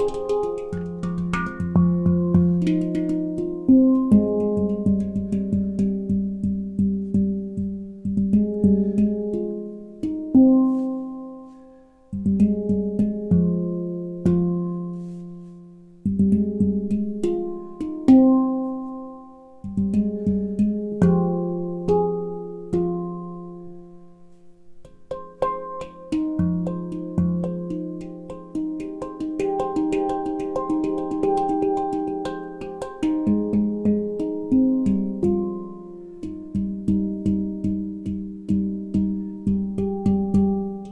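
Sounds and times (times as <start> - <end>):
soft taps on handpan: 0.0 - 13.6, 14.2 - 19.0, 19.6 - 23.2, 24.8 - 40.9
handpan played by hand: 0.0 - 40.9.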